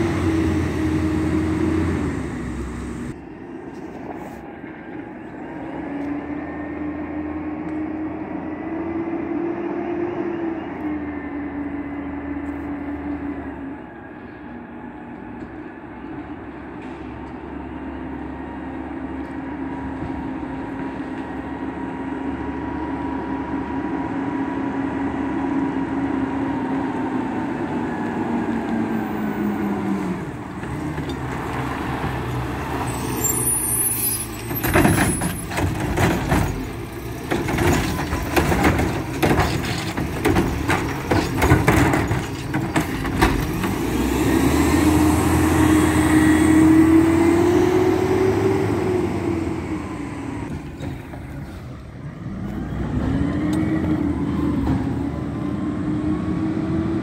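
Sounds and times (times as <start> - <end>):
garbage truck engine: 0.0 - 57.0
truck rattling and clanking: 28.7 - 45.7, 48.3 - 55.2.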